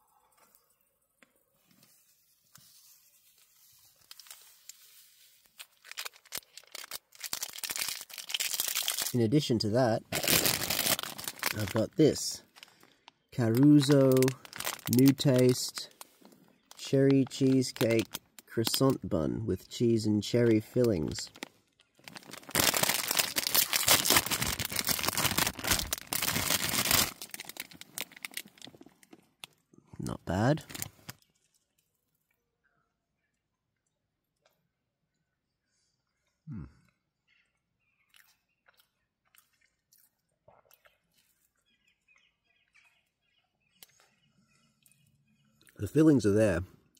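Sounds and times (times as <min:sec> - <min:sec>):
plastic sachet crinkling: 0:02.6 - 0:19.1, 0:19.8 - 0:29.6, 0:30.2 - 0:31.6.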